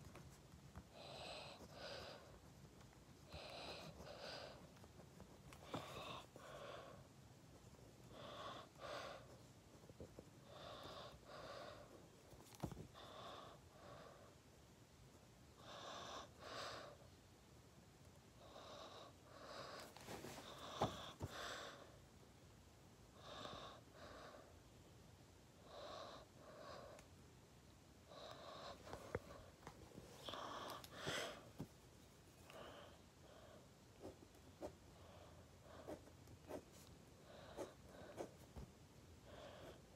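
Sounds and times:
faint breathing: 0:28.1 - 0:31.7, 0:39.2 - 0:39.9.

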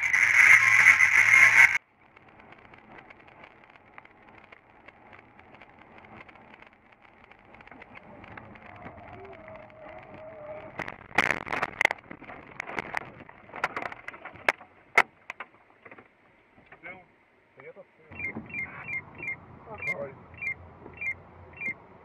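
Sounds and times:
road noise inside car: 0:00.0 - 0:15.2, 0:18.1 - 0:22.0.

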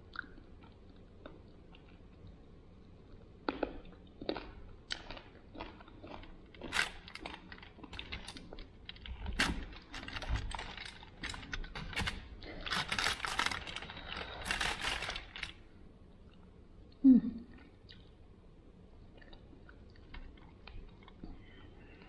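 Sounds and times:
foil crinkling: 0:06.6 - 0:15.6.

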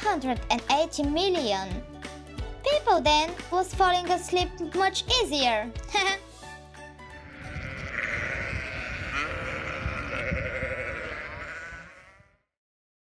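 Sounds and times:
sheep bleating: 0:07.2 - 0:12.4.

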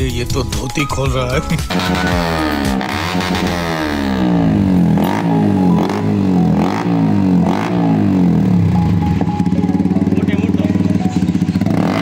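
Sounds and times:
exhaust cracks: 0:01.6 - 0:08.4
motorcycle engine revving: 0:01.6 - 0:12.0.

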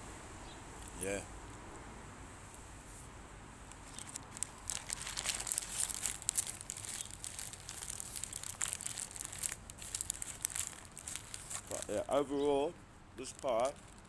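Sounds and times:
paper bag crinkling: 0:03.8 - 0:12.1.

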